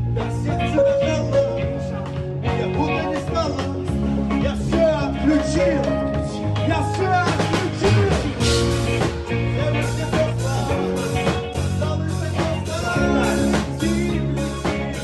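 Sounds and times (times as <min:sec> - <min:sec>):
bass guitar: 0:00.0 - 0:15.0
drum kit beat: 0:00.0 - 0:15.0
electric guitar: 0:00.0 - 0:15.0
person singing: 0:00.0 - 0:15.0.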